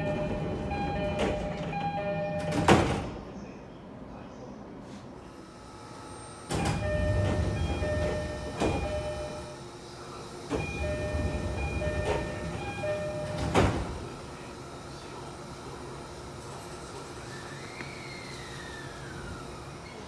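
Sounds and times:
train door chime tones: 0.0s - 3.2s, 6.5s - 9.6s, 10.5s - 14.1s.

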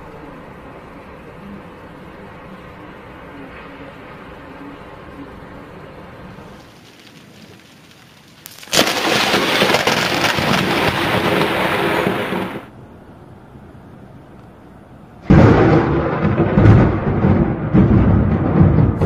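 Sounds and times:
thunder cracks: 8.6s - 12.7s, 15.2s - 19.0s.

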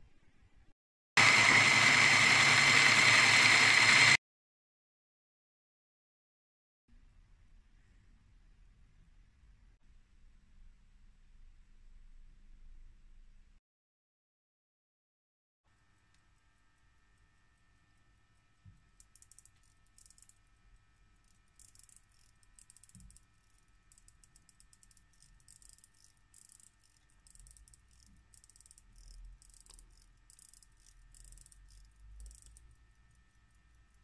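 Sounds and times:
watch winding clicks: 18.9s - 34.0s.

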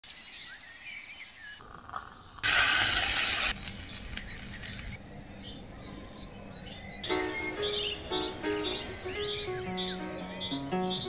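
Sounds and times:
loud hiss: 1.6s - 5.0s
faint hiss: 1.6s - 11.0s.

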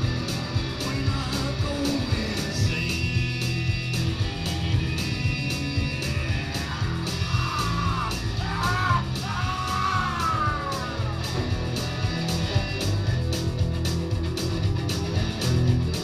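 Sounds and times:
drums: 0.0s - 16.0s
electric guitars: 0.0s - 16.0s
man yelling vocal: 6.5s - 11.3s.

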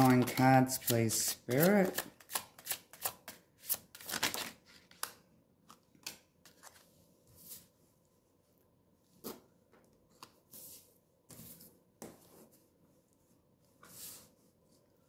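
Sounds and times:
cards being shuffled: 0.0s - 6.9s.

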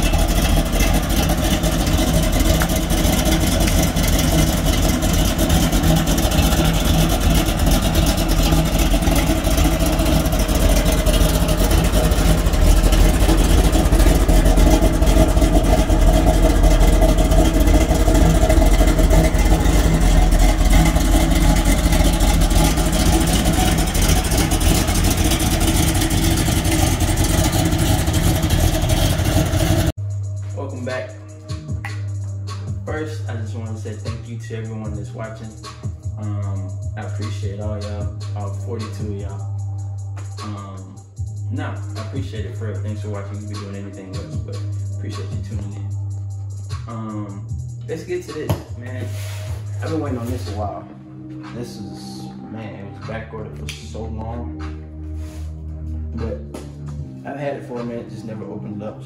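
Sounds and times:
car engine idling: 0.0s - 30.0s.

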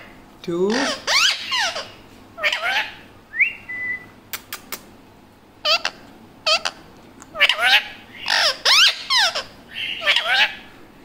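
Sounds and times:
parakeet chattering: 0.6s - 3.1s, 5.6s - 10.7s
parakeet whistle: 2.5s - 4.1s
sharp clicks: 4.3s - 4.9s.

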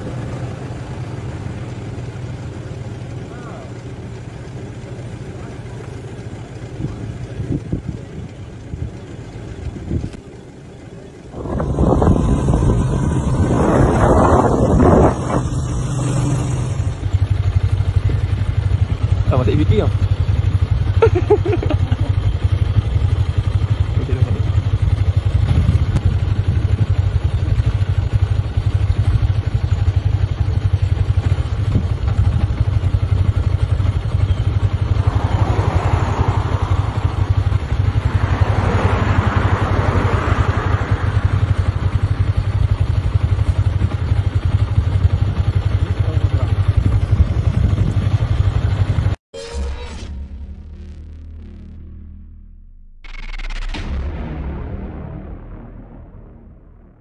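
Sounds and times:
vehicle engine idling: 0.0s - 49.2s
car passing: 11.2s - 17.4s, 34.4s - 42.4s.

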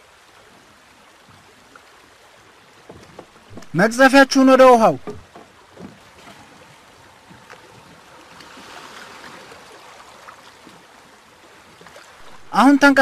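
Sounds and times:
oars splashing in water: 0.4s - 13.0s
faint knocks: 2.8s - 4.0s, 4.9s - 6.0s.

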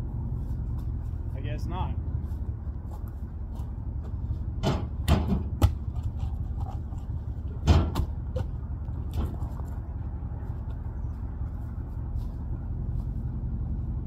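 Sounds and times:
steady low rumble: 0.0s - 14.0s
firewood logs knocking and thudding: 3.0s - 9.9s.

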